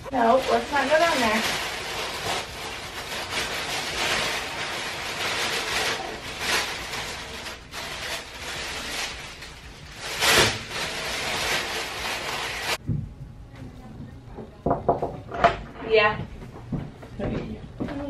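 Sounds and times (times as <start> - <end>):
paper crinkling and rustling: 0.0 - 12.8.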